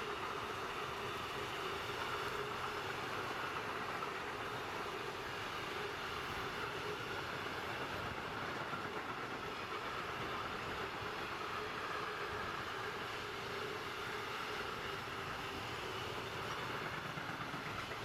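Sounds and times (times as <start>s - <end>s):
train wheels rolling on rails: 0.0s - 18.0s.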